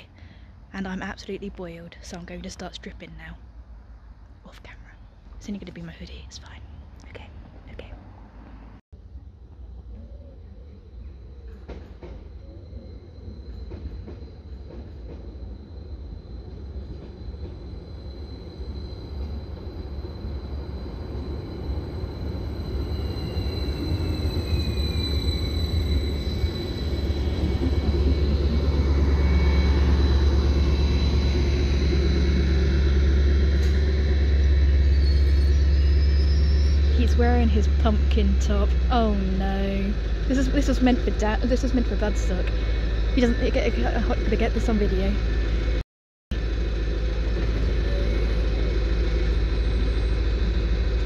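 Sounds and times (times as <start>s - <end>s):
train rumble: 0.0s - 51.0s
train whine falling in pitch: 11.1s - 45.8s, 46.4s - 51.0s.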